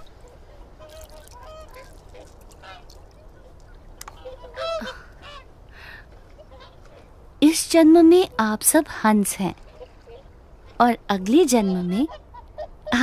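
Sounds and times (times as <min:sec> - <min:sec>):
swans honking: 0:00.2 - 0:03.5, 0:04.1 - 0:05.5.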